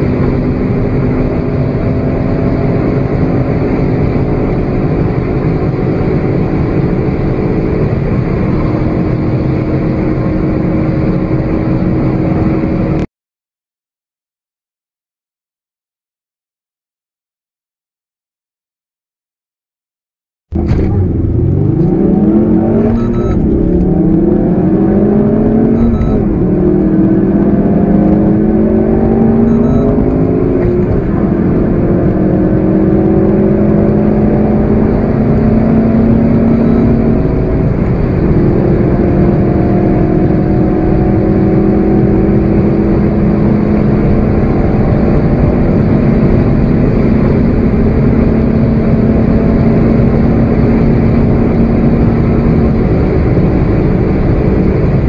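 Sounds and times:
car engine accelerating: 0.0 - 13.1, 20.5 - 55.0.

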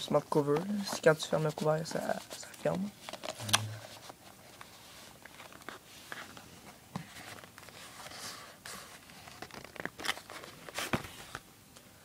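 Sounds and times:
packaging rustling: 7.0 - 11.4.

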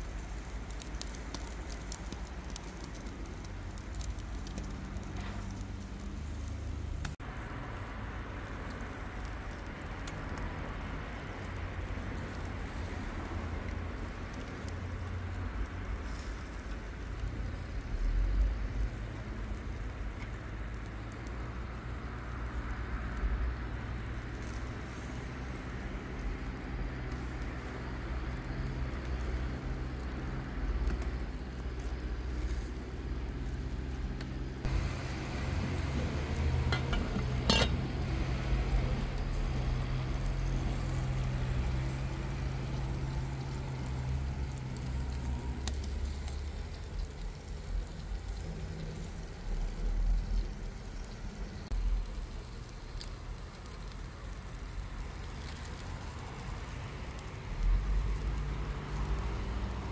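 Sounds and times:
fire crackling faintly: 0.0 - 59.9
kebabs sizzling: 0.0 - 59.9.

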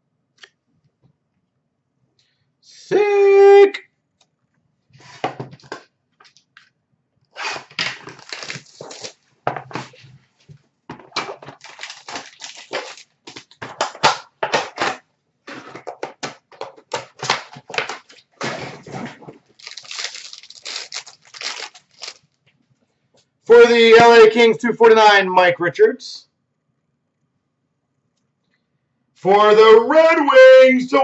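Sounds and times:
packaging and cards rustling: 7.6 - 10.1, 10.9 - 14.9, 15.8 - 22.4.

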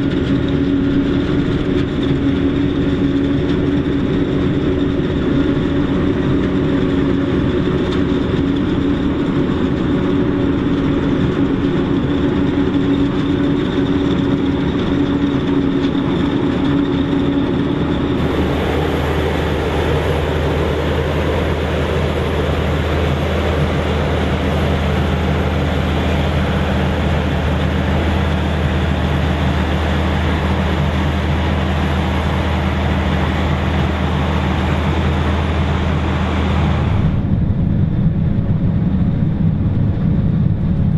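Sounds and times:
harvester engine drone: 0.0 - 40.9
crop rushing through machine: 18.1 - 37.3.

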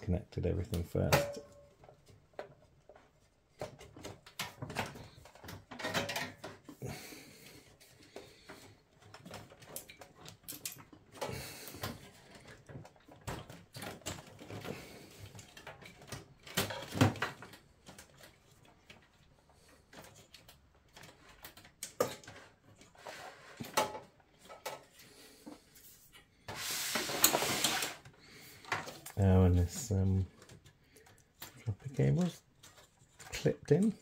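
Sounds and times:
metal parts clicking and scraping: 9.2 - 11.2.

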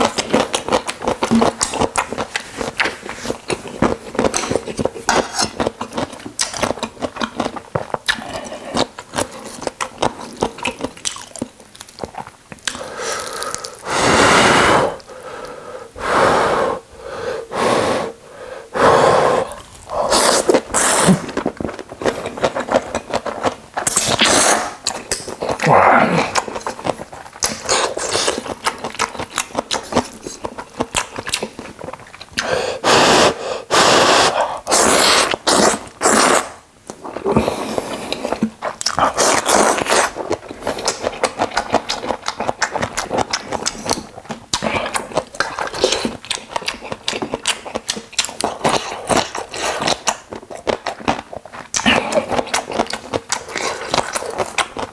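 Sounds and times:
wet chewing clicks: 0.0 - 13.9, 20.1 - 32.5, 34.7 - 54.9
person slurping noodles: 12.7 - 15.4, 16.0 - 22.8, 23.9 - 24.8, 32.4 - 38.4.

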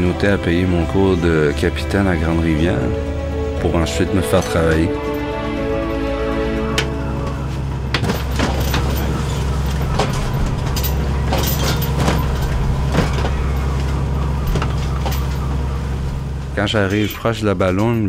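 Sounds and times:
boat engine droning: 0.0 - 18.0
crabs and gear clattering: 7.9 - 15.8.

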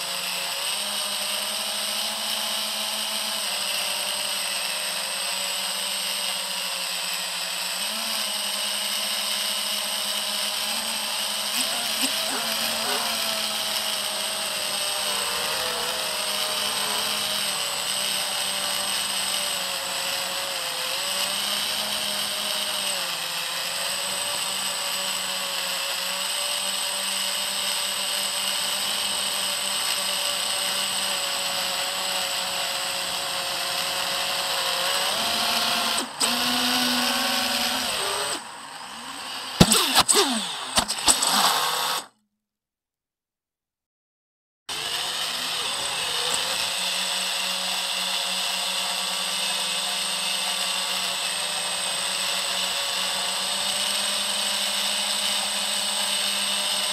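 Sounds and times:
drone propellers whining: 10.6 - 19.9, 35.3 - 42.1.

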